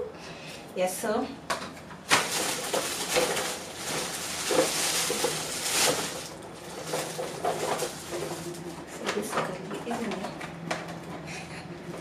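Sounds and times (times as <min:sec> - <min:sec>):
plastic packaging crinkling: 0:02.0 - 0:09.0.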